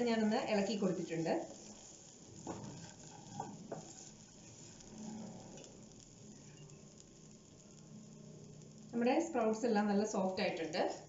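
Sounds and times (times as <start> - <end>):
faint sizzling in a pan: 0.0 - 11.0
wooden spatula scraping a pan: 0.2 - 5.8.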